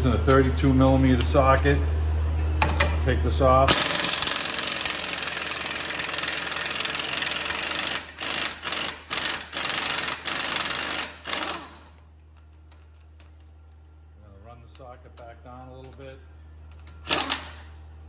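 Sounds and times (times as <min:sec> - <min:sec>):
impact wrench hammering: 0:03.7 - 0:12.0, 0:16.7 - 0:17.7.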